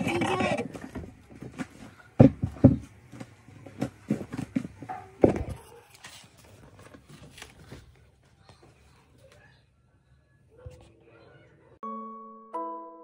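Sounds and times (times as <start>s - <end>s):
objects being handled: 0.0s - 9.4s.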